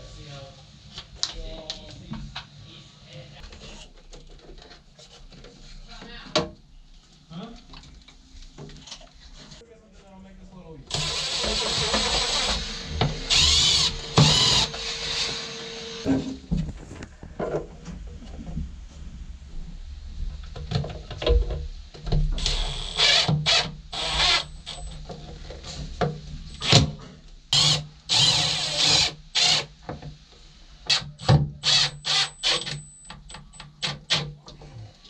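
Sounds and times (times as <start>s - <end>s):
cordless drill driving screws: 10.9s - 16.1s, 22.4s - 25.0s, 27.6s - 29.7s, 30.9s - 34.2s.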